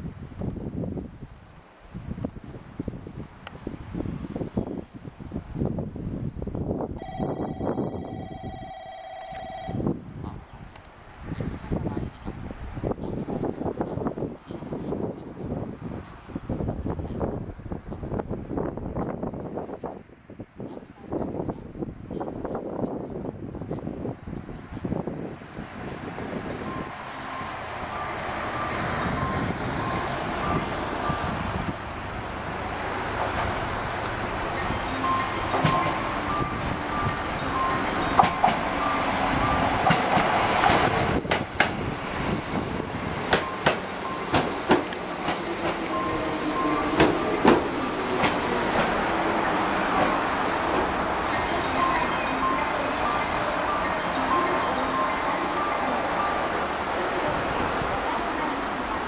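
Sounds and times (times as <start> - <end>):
level crossing bell: 7.0 - 9.9, 51.9 - 56.5
electric train running: 25.7 - 59.0
wheels clacking over rail joints: 32.6 - 52.7.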